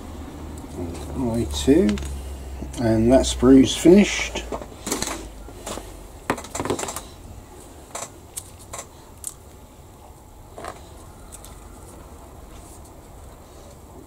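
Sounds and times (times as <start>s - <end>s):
plastic parts clicking and clattering: 4.5s - 7.2s.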